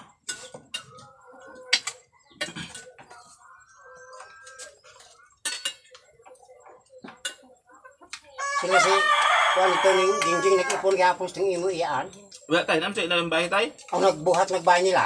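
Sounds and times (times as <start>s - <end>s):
spoons clinking on bowls: 0.2s - 1.1s, 4.4s - 6.0s.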